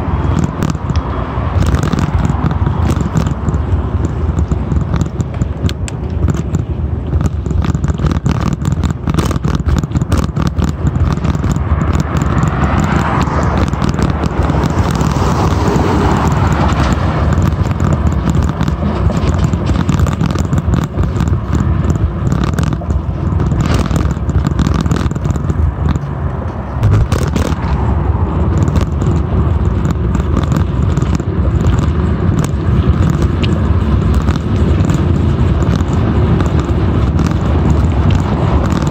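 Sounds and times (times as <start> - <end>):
car passing: 0.0 - 6.1, 10.8 - 19.8, 25.0 - 38.9
bike knocks and rattles: 0.0 - 38.9
tyre rumble: 0.0 - 38.9
wind rush on microphone: 0.0 - 38.9.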